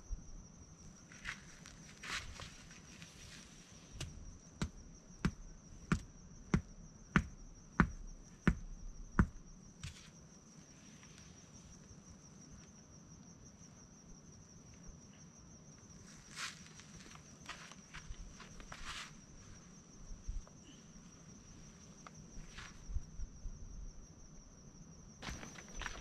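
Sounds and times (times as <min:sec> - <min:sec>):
footsteps on hard dirt: 0:16.2 - 0:19.2, 0:25.2 - 0:26.0.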